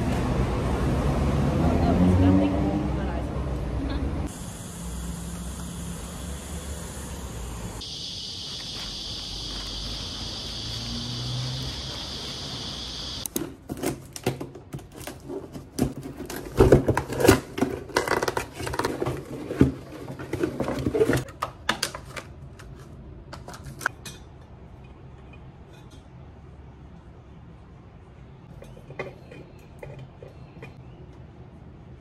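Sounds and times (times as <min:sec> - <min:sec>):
cardboard packaging rustling: 0:13.4 - 0:21.3.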